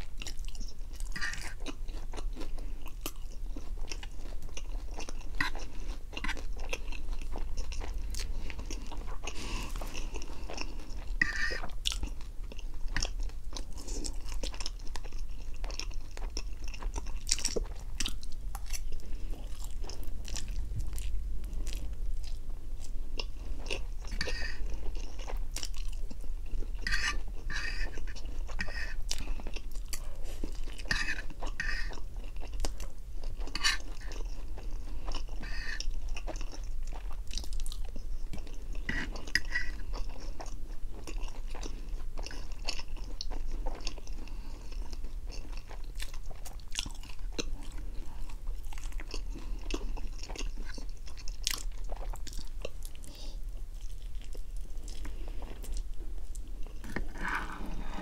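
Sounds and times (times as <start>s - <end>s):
chewing noodles: 0.0s - 58.0s.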